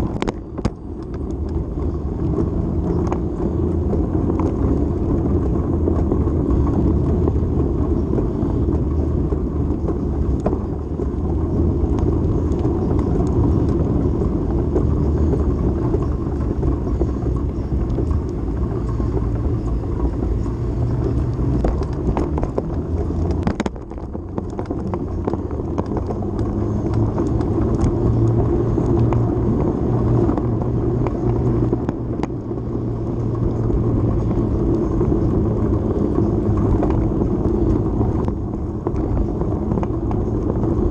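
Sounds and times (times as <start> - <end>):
low hum: 0.0 - 40.9
road rumble: 0.0 - 40.9
wind rush: 0.0 - 40.9.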